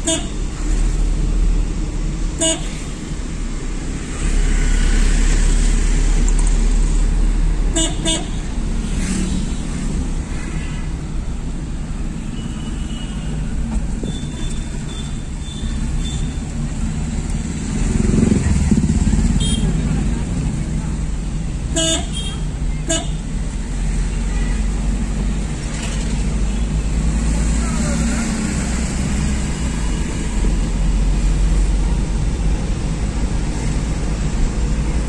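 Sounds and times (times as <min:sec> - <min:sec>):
moving vehicle rumble: 0:00.0 - 0:35.0
vehicle horn toots: 0:19.4 - 0:19.8, 0:21.8 - 0:23.2.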